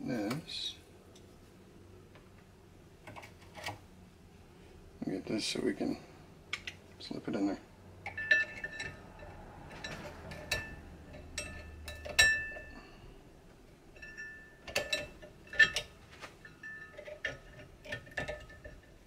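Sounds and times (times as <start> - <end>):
metal parts clinking against a vise: 8.0 - 12.8, 13.9 - 19.0.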